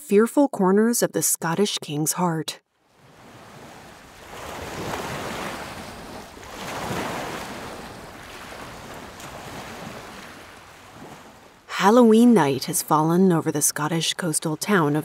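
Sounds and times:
wind: 2.7 - 15.0
sea waves surging: 2.8 - 13.1.

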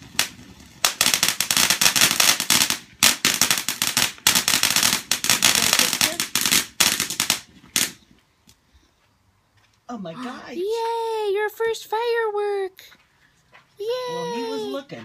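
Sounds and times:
firework crackling and popping: 0.0 - 8.1.

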